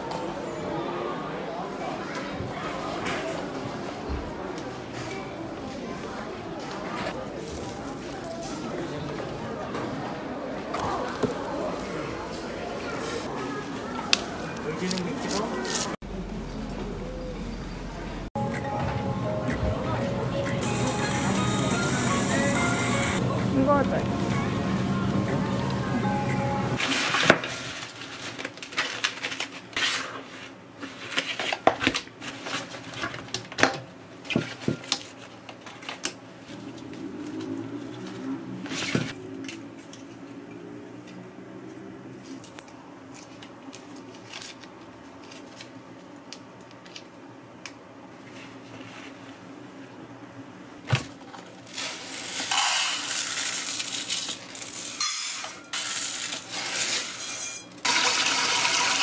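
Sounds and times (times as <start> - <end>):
plastic packaging rustling: 26.8 - 33.5, 51.1 - 55.0, 55.6 - 57.2
rice pouring into metal pot: 57.9 - 59.0.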